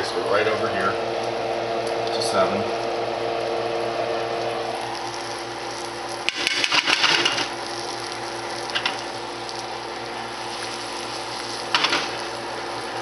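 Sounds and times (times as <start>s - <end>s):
fish fillets sizzling in oil: 3.2s - 13.0s.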